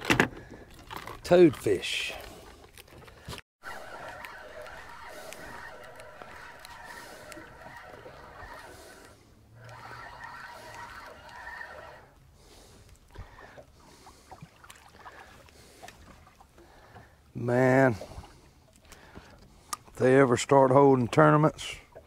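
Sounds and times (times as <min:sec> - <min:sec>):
wind: 0:00.0 - 0:22.0
water noise: 0:00.7 - 0:22.0
fishing reel cranking: 0:03.7 - 0:12.1.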